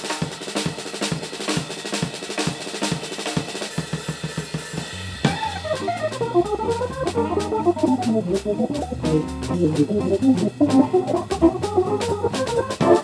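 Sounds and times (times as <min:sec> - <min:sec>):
jazz drum solo: 0:00.0 - 0:13.0
organ bass notes: 0:05.0 - 0:13.0.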